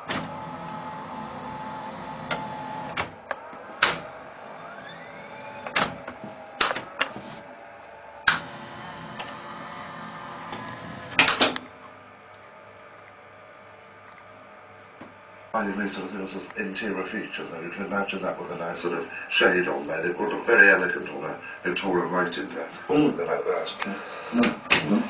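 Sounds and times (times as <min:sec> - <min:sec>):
motor whine: 0:00.0 - 0:11.7.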